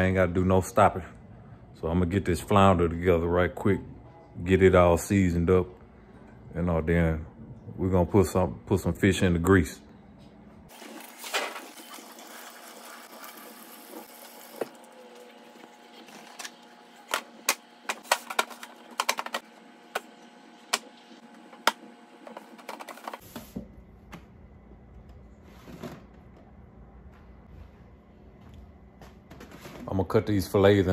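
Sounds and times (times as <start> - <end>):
kitchen tap running: 10.7 - 16.2.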